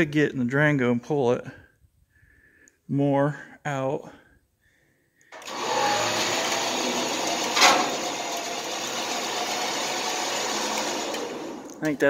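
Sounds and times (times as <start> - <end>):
electric winch running: 5.4 - 12.0.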